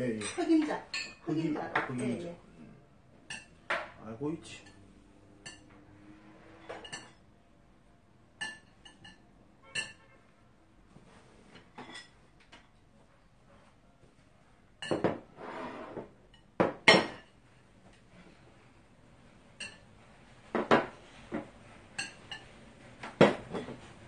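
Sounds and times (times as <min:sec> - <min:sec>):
dishes clattering: 0:06.7 - 0:07.2, 0:14.8 - 0:17.4, 0:19.6 - 0:19.8, 0:20.5 - 0:24.0.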